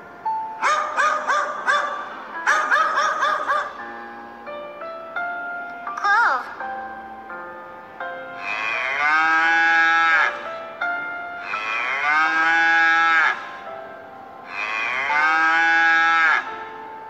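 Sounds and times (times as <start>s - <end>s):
soft musical notes: 3.7s - 8.9s
cow mooing: 8.4s - 10.5s, 11.4s - 13.5s, 14.4s - 16.6s.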